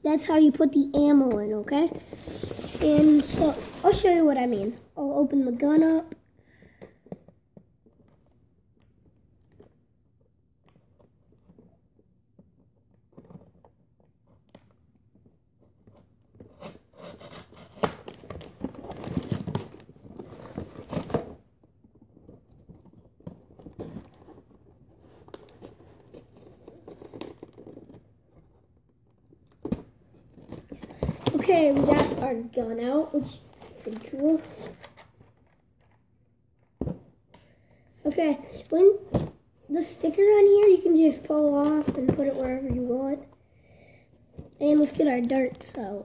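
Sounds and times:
cardboard and plastic tearing: 0:01.9 - 0:04.3, 0:16.4 - 0:21.4, 0:25.0 - 0:28.1, 0:29.7 - 0:32.4, 0:33.2 - 0:35.2.

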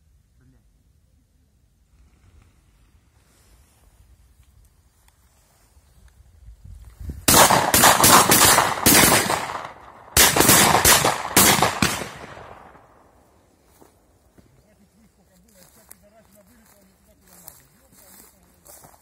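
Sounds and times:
shotgun shots echoing: 0:07.3 - 0:13.1.

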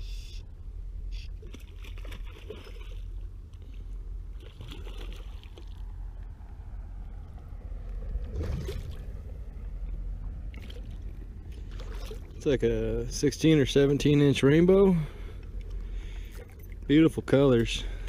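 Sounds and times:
steady low rumble: 0:00.0 - 0:18.0
fish splashing in water: 0:01.4 - 0:03.2, 0:04.3 - 0:06.0, 0:08.1 - 0:09.5, 0:10.3 - 0:12.4.

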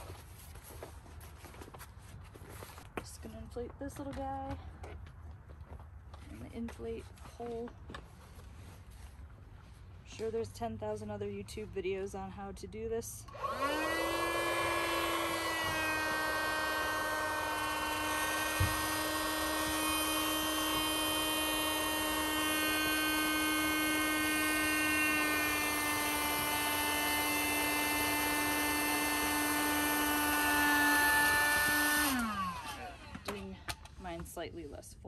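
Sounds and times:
electric air pump running: 0:13.3 - 0:34.0.

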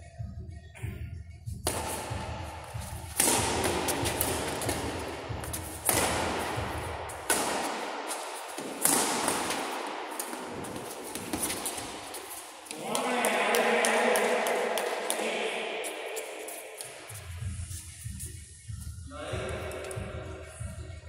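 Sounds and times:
badminton racket smacking shuttlecock: 0:01.6 - 0:17.2.

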